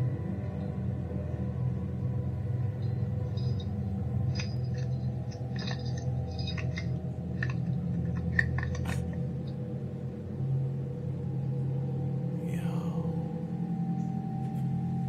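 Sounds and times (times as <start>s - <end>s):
background music drone: 0.0s - 15.0s
keys clinking against metal: 3.3s - 3.7s, 4.3s - 9.2s.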